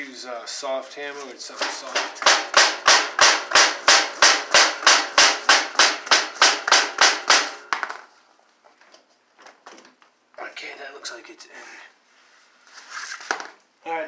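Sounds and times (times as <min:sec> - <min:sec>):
hammer tapping steel frame: 0:01.6 - 0:07.8.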